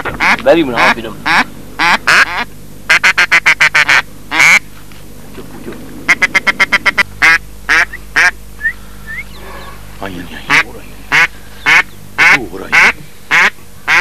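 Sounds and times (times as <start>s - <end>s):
duck quacking: 0.0s - 4.6s, 6.1s - 8.4s, 9.2s - 14.0s
short rising whistle: 8.6s - 9.8s.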